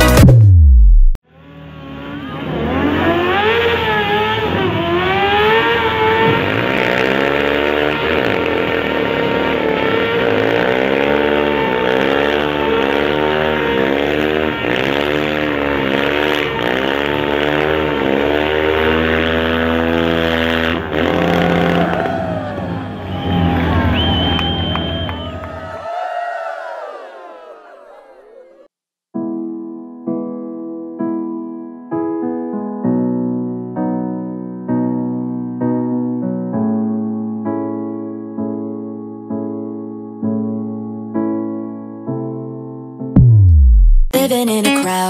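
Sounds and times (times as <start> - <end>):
music sliding down in pitch: 0.0 - 1.2, 43.2 - 44.8
quad bike engine revving: 1.5 - 25.5.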